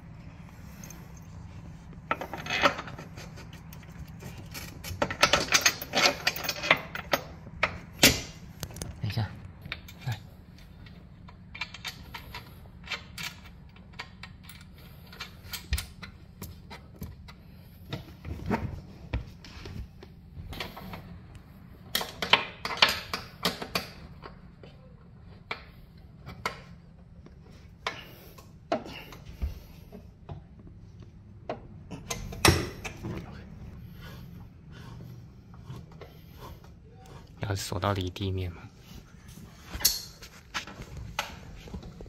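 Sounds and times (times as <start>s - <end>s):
spanner clicking on metal bolts: 3.7s - 8.3s, 10.8s - 16.2s, 21.9s - 24.3s.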